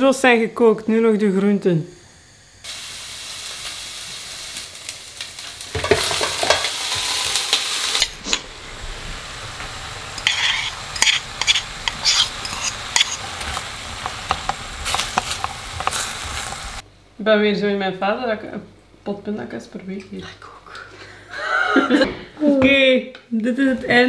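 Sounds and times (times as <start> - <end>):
vegetables sizzling in pan: 2.1 - 16.8
spoon scraping and clinking: 10.2 - 13.6.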